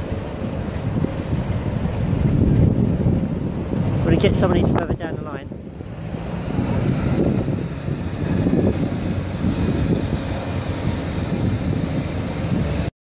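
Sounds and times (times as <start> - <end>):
street traffic: 0.0 - 12.9
wind buffeting microphone: 0.0 - 12.9.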